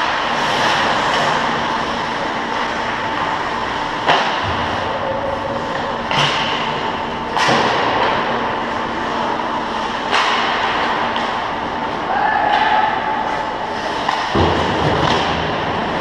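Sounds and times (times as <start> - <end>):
skates scraping on ice: 0.0 - 3.5
faint rink hum: 0.0 - 16.0
sharp knocks of sticks and puck: 4.0 - 4.6, 7.4 - 8.2, 10.1 - 11.4, 14.0 - 15.6.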